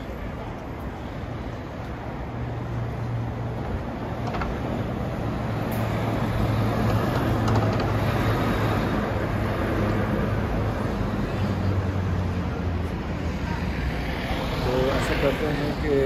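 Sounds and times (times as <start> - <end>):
vehicles driving past: 0.0 - 16.0.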